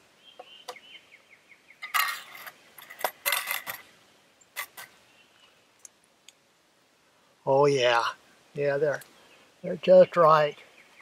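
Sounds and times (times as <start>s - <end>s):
crackling scrapes: 4.6s - 5.0s.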